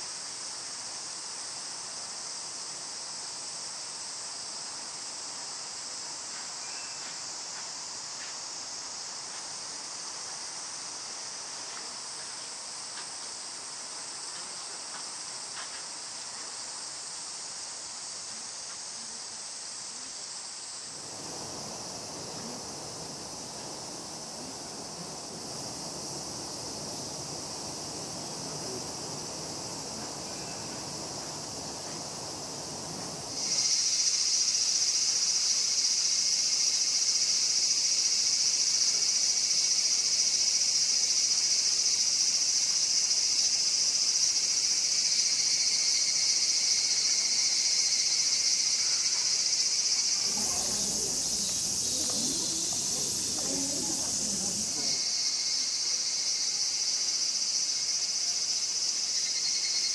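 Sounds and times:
background hiss: 0.0s - 59.9s
cicadas droning: 0.0s - 59.9s.

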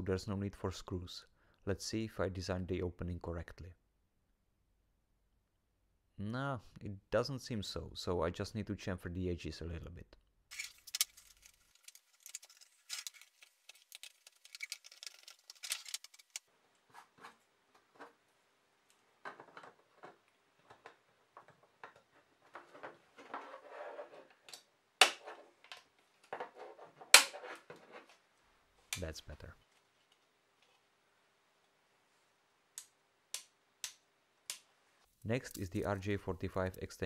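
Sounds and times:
plastic knocks and handling: 19.1s - 23.6s.

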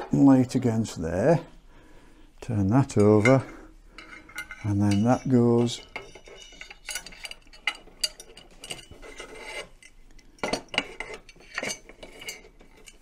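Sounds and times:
metal parts clinking and knocking: 2.9s - 13.0s
bolt scraping through metal: 3.0s - 13.0s.

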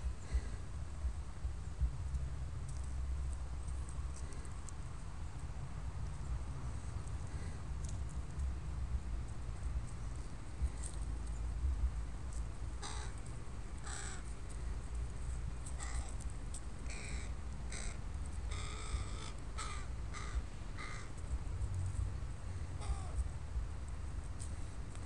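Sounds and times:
crow cawing: 12.8s - 13.2s, 13.8s - 14.2s, 15.8s - 16.1s, 16.9s - 21.1s, 22.8s - 23.2s.

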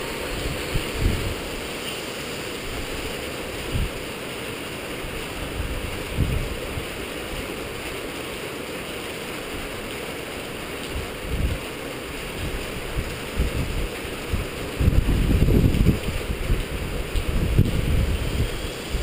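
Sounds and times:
wind buffeting microphone: 0.0s - 1.8s, 2.6s - 4.0s, 5.0s - 7.0s, 10.8s - 19.0s
rain and wind rushing: 0.0s - 19.0s.

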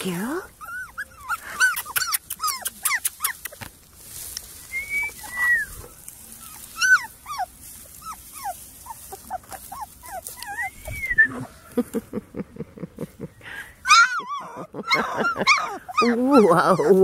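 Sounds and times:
puppy whimpering and yipping: 0.5s - 3.7s, 5.0s - 11.6s, 13.9s - 17.0s.

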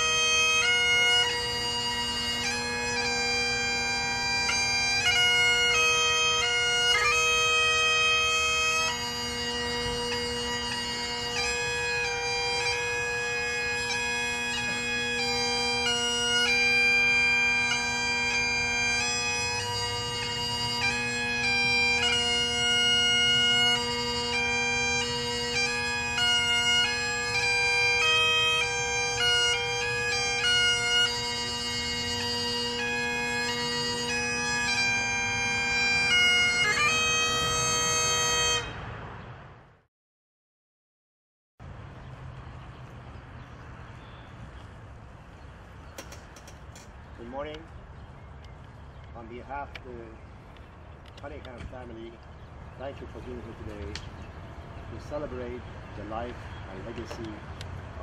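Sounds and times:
bagpipes playing slow melody: 0.0s - 39.0s, 49.0s - 58.0s.

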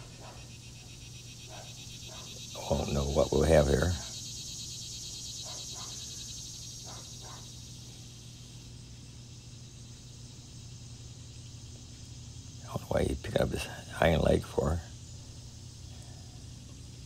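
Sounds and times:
faint lower calls: 0.0s - 8.2s
insect chorus trilling: 0.0s - 17.0s.

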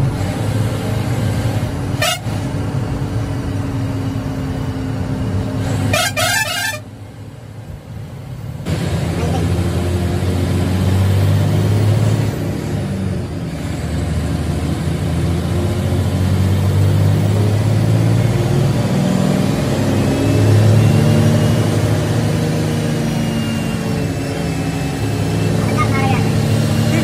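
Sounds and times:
bus diesel engine drone: 0.0s - 27.0s
road noise: 0.0s - 27.0s.

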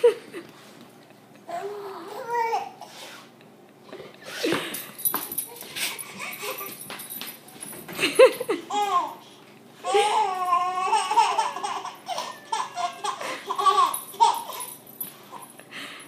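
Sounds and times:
baby laughing: 8.3s - 9.2s, 9.8s - 14.7s.

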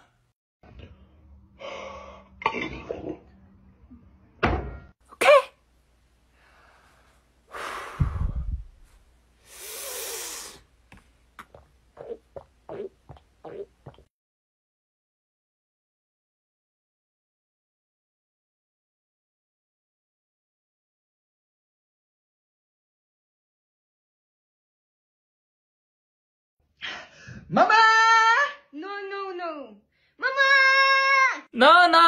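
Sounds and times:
hiss: 9.4s - 10.6s
man making mouth noises: 11.4s - 14.0s.

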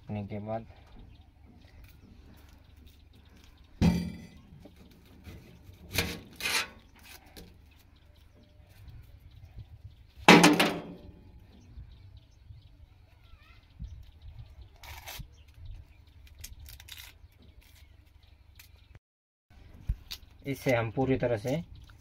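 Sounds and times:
onion skin crackling tears: 16.2s - 17.8s.

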